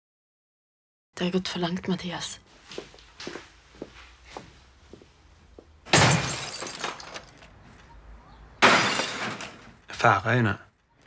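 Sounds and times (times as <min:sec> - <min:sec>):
loud breaking crashes: 0:05.9 - 0:07.4, 0:08.6 - 0:09.8.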